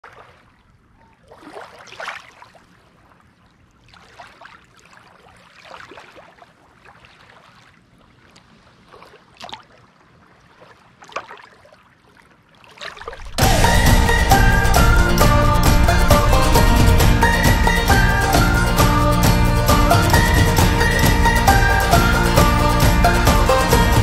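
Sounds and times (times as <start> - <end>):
small waves lapping on sand: 0.0 - 13.6.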